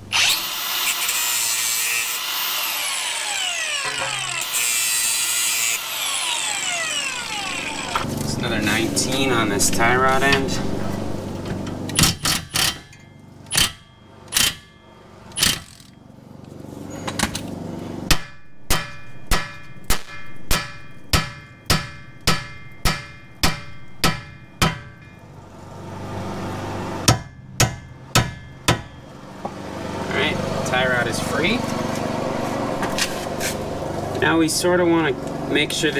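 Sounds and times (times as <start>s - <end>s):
hammer striking metal: 12.0s - 15.7s, 18.1s - 25.2s, 27.0s - 29.2s.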